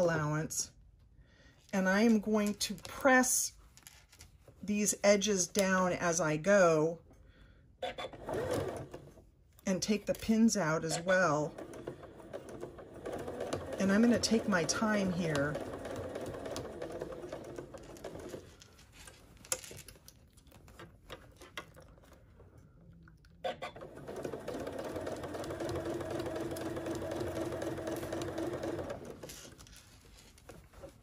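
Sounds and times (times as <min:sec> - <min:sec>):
sewing machine stitching: 0:07.8 - 0:09.2, 0:10.6 - 0:18.6, 0:23.4 - 0:29.6.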